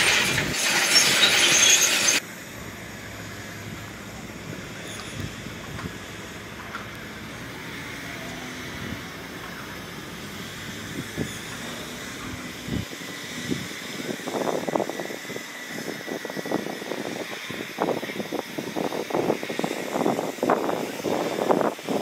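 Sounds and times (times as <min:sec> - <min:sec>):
irregular machinery clatter: 0:00.0 - 0:02.2
diesel machinery rumbling: 0:00.0 - 0:22.0.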